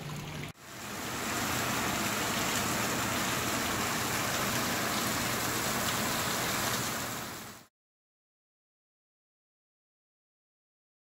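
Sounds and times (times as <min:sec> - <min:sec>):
water splashing like heavy rain: 0:00.0 - 0:07.7.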